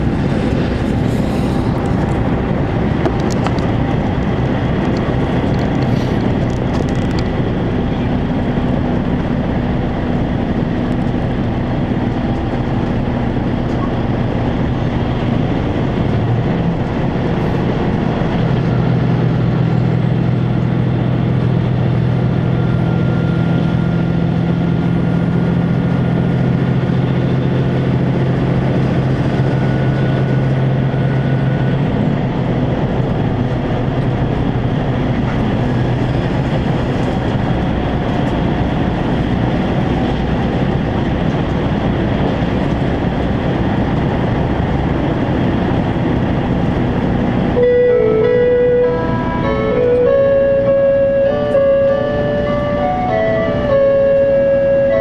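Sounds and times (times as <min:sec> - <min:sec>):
low engine drone: 0:00.0 - 0:55.0
train wheels rumbling on rail: 0:00.0 - 0:55.0
music: 0:47.6 - 0:52.0.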